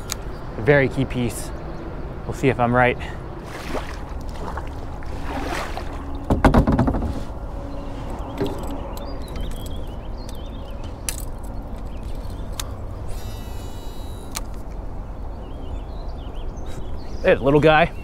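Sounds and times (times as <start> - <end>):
paddle splashing in water: 3.4 - 7.3.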